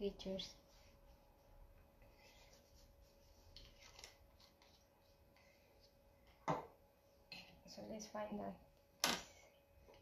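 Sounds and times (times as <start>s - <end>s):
paintbrush scratching on paper: 0.5s - 3.8s.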